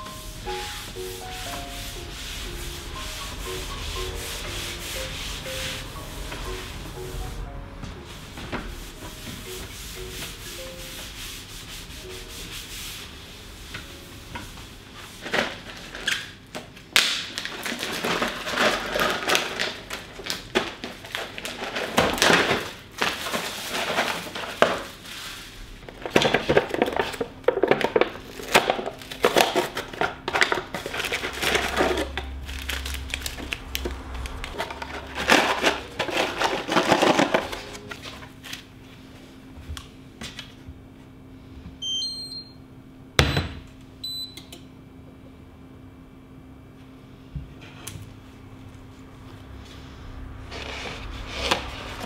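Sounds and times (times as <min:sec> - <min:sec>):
cloth rubbing on wood: 0:00.1 - 0:07.3, 0:08.0 - 0:14.0
plastic crinkling and crackling: 0:17.2 - 0:24.8, 0:25.9 - 0:38.7.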